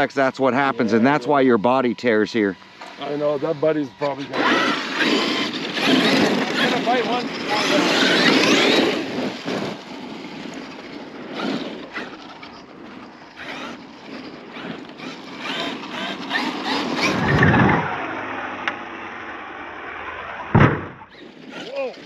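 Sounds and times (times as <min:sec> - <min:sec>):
electric motor whining: 0:00.0 - 0:22.0
tyres scrabbling on dirt: 0:04.2 - 0:18.1
plastic chassis slapping ground: 0:14.5 - 0:18.8.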